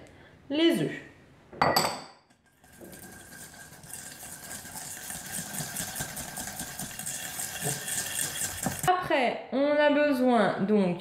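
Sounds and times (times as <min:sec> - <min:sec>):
whisk beating in metal bowl: 0:02.4 - 0:08.9.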